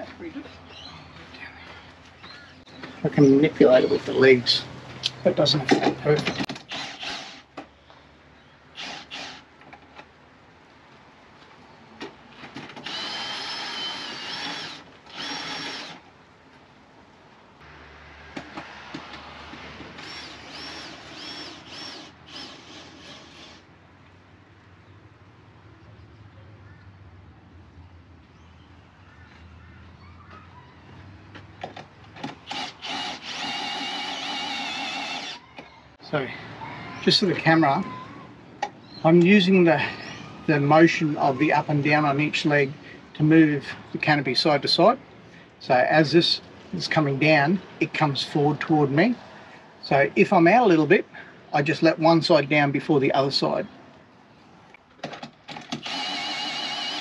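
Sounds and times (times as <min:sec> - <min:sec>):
cordless drill whining: 0:06.6 - 0:07.5, 0:08.8 - 0:09.4, 0:12.8 - 0:16.0, 0:20.0 - 0:23.6, 0:32.4 - 0:35.4, 0:55.6 - 0:57.0.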